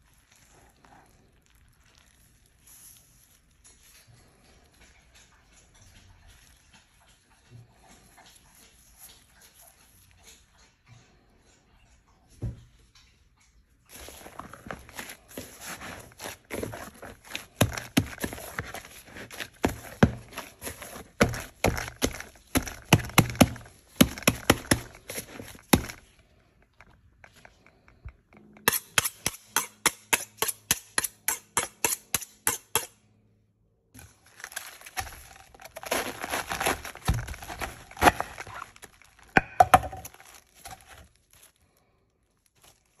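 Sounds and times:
dough being kneaded by hand: 0:00.0 - 0:11.6, 0:13.6 - 0:32.9, 0:33.9 - 0:43.0
knife cutting cabbage on board: 0:13.9 - 0:26.0, 0:28.6 - 0:32.9, 0:34.4 - 0:41.0.

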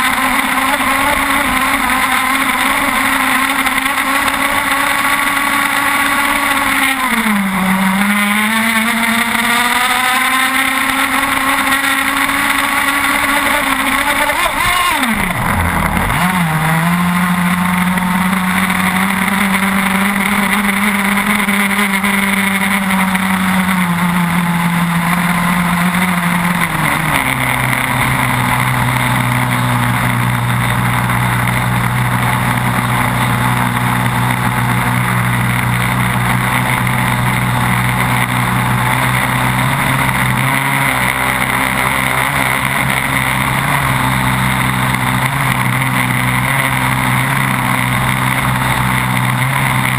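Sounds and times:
two-stroke engine running flat out: 0:00.0 - 0:49.9.

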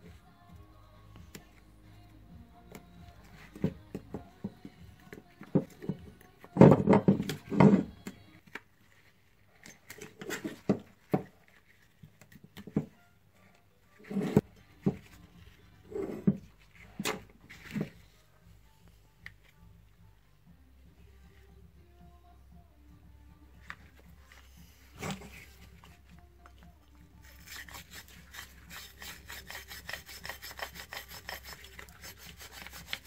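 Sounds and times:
screwdriver scraping metal: 0:27.2 - 0:33.0.

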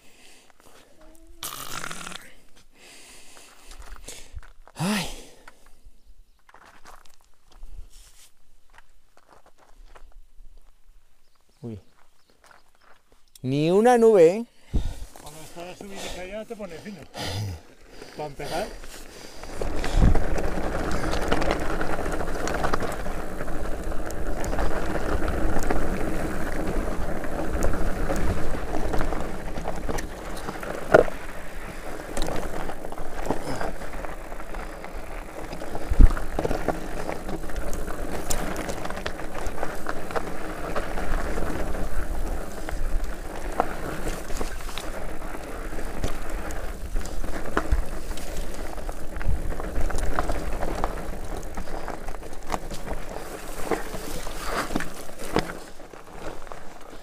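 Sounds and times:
bike tyres crunching over stones: 0:03.2 - 0:57.0
wheels knocking on rocks: 0:18.2 - 0:57.0.

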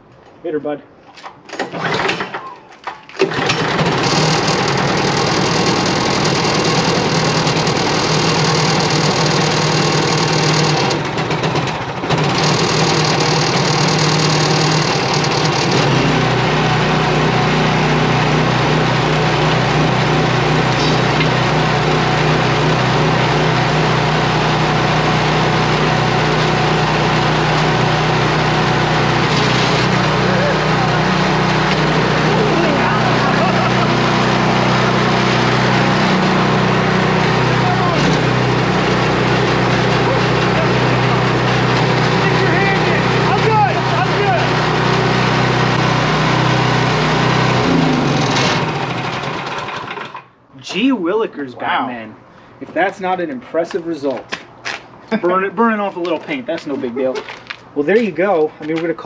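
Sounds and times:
snowblower engine starting and running: 0:01.5 - 0:50.4.

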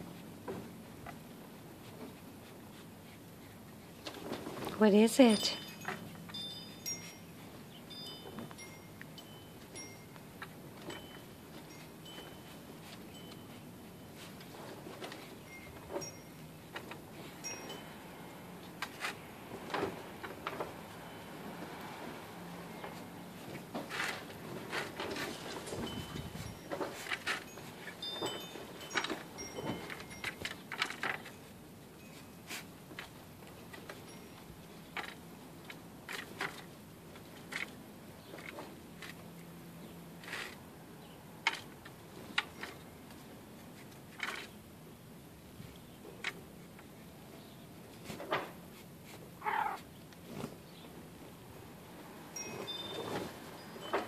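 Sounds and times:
high metallic tinkle: 0:05.1 - 0:14.3, 0:15.2 - 0:16.6, 0:17.2 - 0:18.3, 0:25.7 - 0:32.5, 0:34.0 - 0:34.7, 0:52.4 - 0:54.0.

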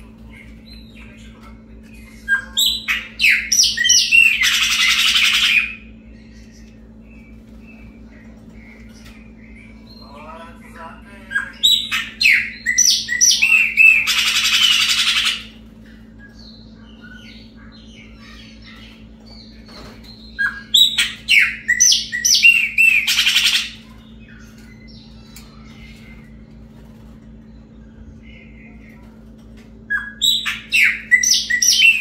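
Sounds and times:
blackbird whistling song: 0:11.4 - 0:15.4, 0:16.2 - 0:26.1, 0:29.9 - 0:32.0.

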